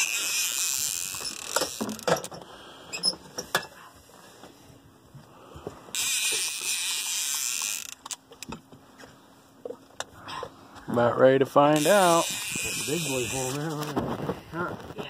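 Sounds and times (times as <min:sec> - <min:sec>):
fishing reel drag buzzing: 0:00.0 - 0:02.1, 0:05.9 - 0:08.2, 0:11.7 - 0:13.9.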